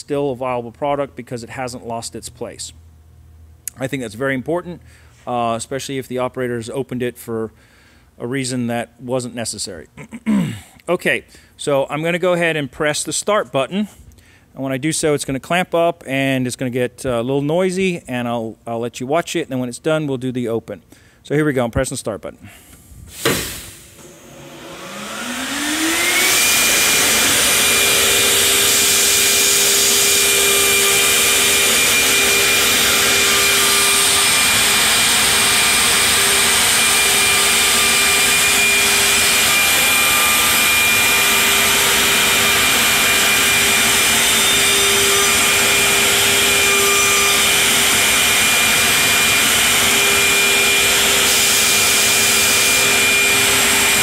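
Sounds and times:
cutter routing into wood: 24.0 - 54.0
router spindle whine: 24.0 - 54.0.

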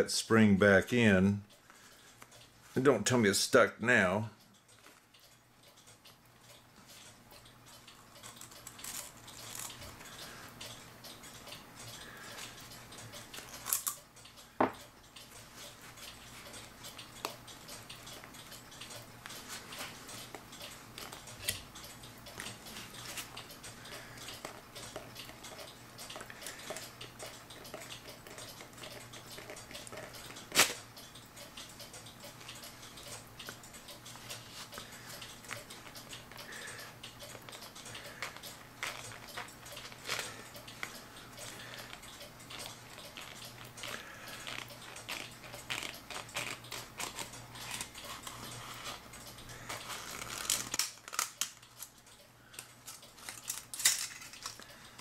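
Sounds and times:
clock spring clicking and scraping: 4.6 - 55.0.

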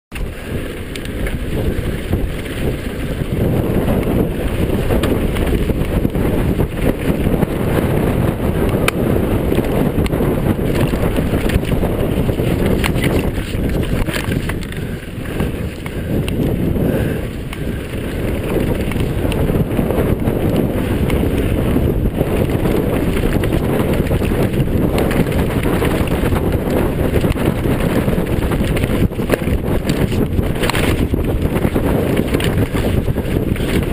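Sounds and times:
wind buffeting microphone: 0.1 - 33.9
bike knocking over stones: 9.6 - 16.4, 22.4 - 33.9.

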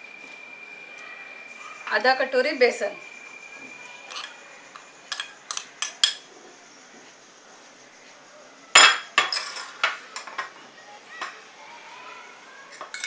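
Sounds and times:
metal spoon clinking steel bowl: 4.1 - 6.2.

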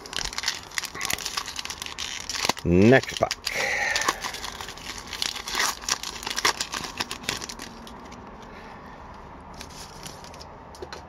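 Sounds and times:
foil wrapper tearing and crinkling: 0.0 - 8.2.

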